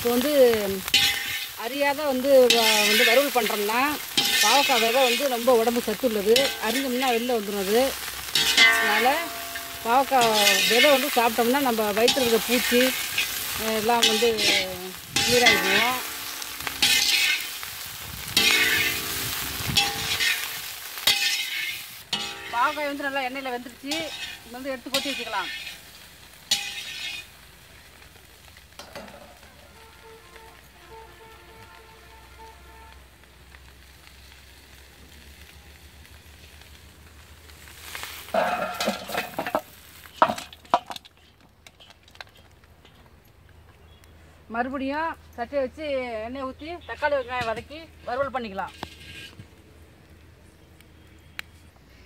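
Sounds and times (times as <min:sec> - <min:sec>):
food sizzling in hot oil: 0:00.0 - 0:42.6, 0:46.1 - 0:49.8
metal ladle stirring in wok: 0:00.8 - 0:01.6, 0:02.5 - 0:05.5, 0:08.0 - 0:27.4, 0:38.0 - 0:41.2
pan scraping clatter: 0:08.4 - 0:17.5, 0:18.3 - 0:22.9, 0:23.8 - 0:25.8, 0:26.5 - 0:27.3, 0:38.2 - 0:42.5, 0:48.5 - 0:49.5.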